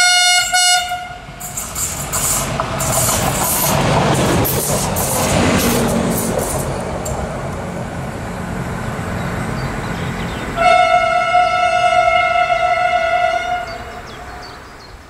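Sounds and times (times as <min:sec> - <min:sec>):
train horn blast: 0:00.0 - 0:01.5, 0:10.6 - 0:14.6
diesel railcar engine rumble: 0:00.0 - 0:15.0.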